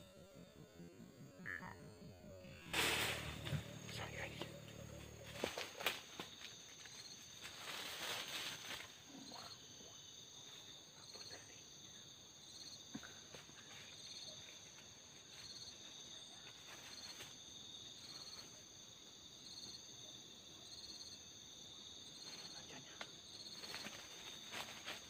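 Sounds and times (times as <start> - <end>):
insect pulsed chirp: 0.0 - 25.0
insects high-pitched drone: 0.0 - 25.0
brush rustling: 2.5 - 9.0.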